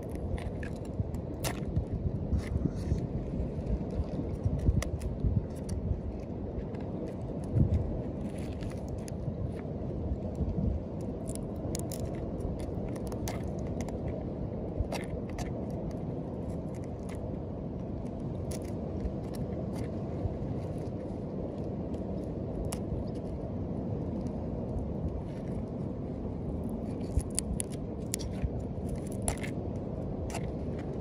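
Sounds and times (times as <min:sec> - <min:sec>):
steady low rumble: 0:00.0 - 0:31.0
knife scraping a shell: 0:11.2 - 0:14.2, 0:26.8 - 0:29.6.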